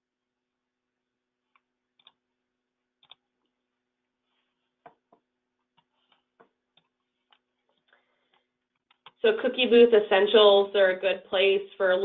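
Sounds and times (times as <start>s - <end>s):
computer mouse clicks: 1.5s - 2.2s, 3.0s - 3.5s, 5.7s - 9.2s.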